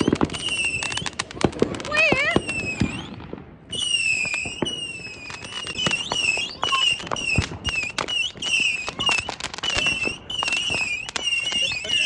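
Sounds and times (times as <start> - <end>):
fireworks high whistling: 0.0 - 12.0
fireworks popping and crackling: 0.0 - 12.0.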